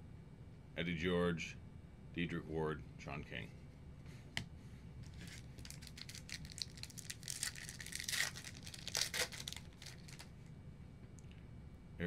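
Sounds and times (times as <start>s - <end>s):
cards and wrapper crinkling: 5.0s - 10.3s.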